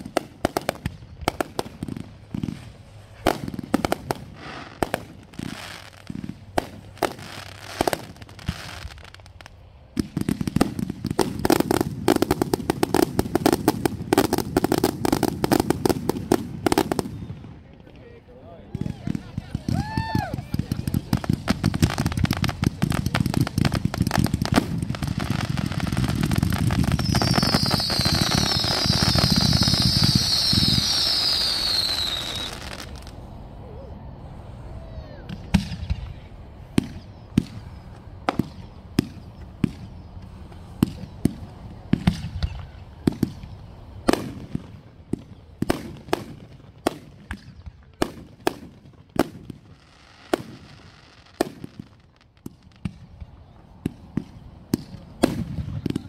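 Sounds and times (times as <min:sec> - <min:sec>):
fireworks barrage crackling: 0:00.0 - 0:56.0
single firework reports: 0:00.0 - 0:56.0
falling firework whistles: 0:18.8 - 0:34.0, 0:34.7 - 0:48.6.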